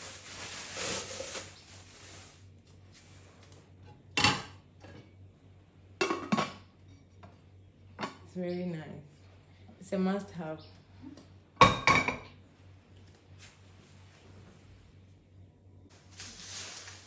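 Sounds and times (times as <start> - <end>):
bubble wrap rustling: 0.0 - 3.6, 15.9 - 17.0.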